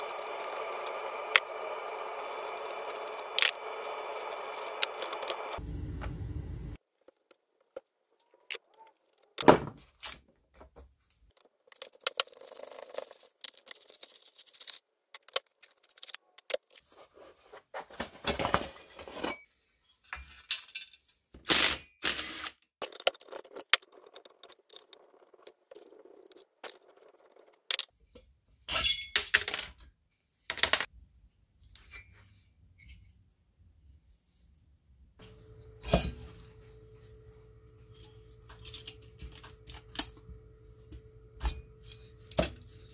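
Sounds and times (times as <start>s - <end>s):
tools scraping and rattling: 11.4s - 21.1s, 37.7s - 40.3s.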